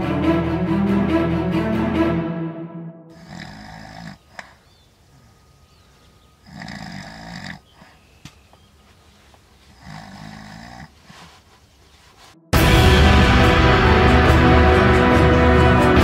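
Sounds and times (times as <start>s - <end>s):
man snoring: 3.1s - 4.6s, 6.4s - 7.8s, 9.8s - 11.0s.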